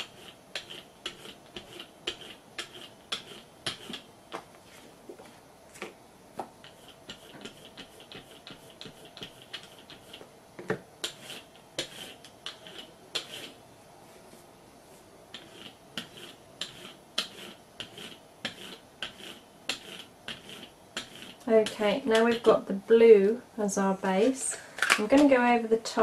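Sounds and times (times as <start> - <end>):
rubber roller clicking on paper: 0.0 - 4.1, 6.6 - 10.2, 15.3 - 22.5.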